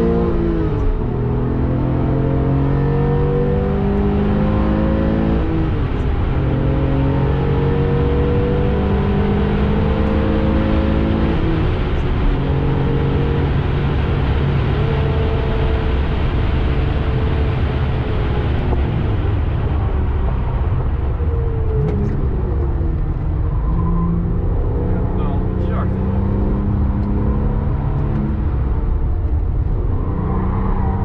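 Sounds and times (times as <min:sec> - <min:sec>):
car engine running under load: 0:03.3 - 0:30.9
tyre and road noise: 0:09.2 - 0:31.0.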